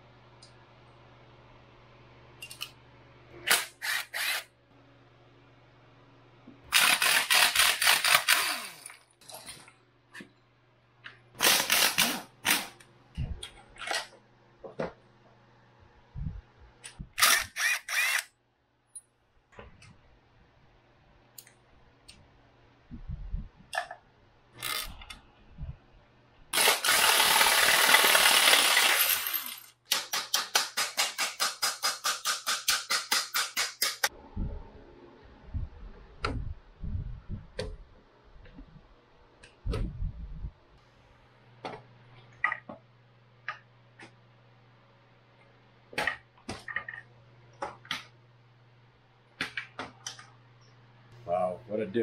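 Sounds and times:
power tool running: 0:03.5 - 0:04.4, 0:17.2 - 0:18.2, 0:26.6 - 0:29.7
ratchet clicking rapidly: 0:17.2 - 0:18.3.

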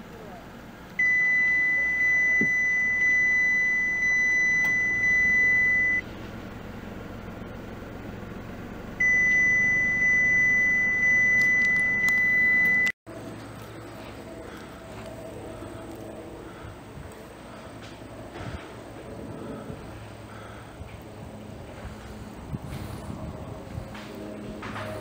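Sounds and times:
high-pitched electronic beep: 0:01.0 - 0:06.0, 0:09.0 - 0:12.9.

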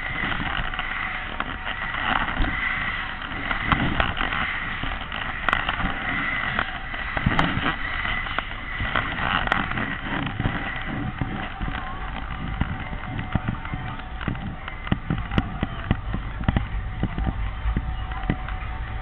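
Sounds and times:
fairground ride rumbling: 0:00.0 - 0:19.0.

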